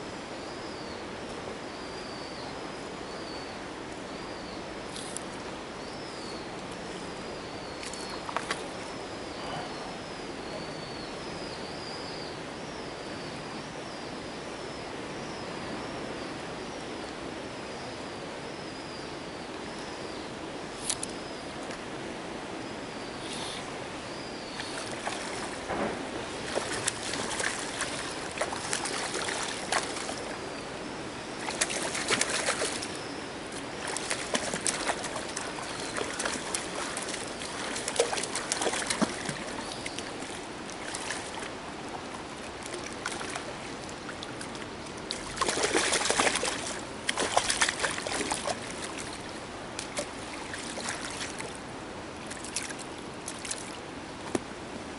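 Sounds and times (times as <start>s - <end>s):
fish splashing in water: 24.6s - 30.3s, 31.4s - 41.5s, 42.6s - 49.2s.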